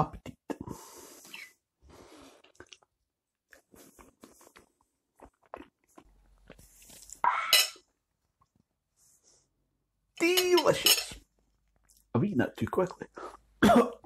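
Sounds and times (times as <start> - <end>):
soft chewing: 2.0 - 7.2, 11.2 - 12.1
person coughing: 13.6 - 14.0.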